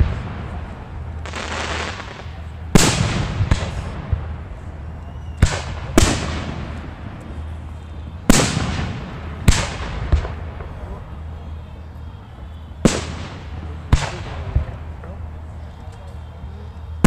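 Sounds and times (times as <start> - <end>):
fireworks bangs with rumble: 0.0 - 4.6, 5.4 - 7.5, 8.2 - 11.4, 12.8 - 15.3
small fireworks pops: 0.0 - 17.0.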